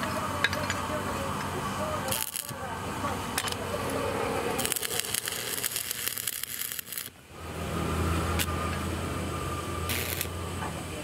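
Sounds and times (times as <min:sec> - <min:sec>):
arc welding crackling and popping: 0:00.0 - 0:09.0, 0:09.8 - 0:10.6
low electric transformer hum: 0:00.0 - 0:11.0.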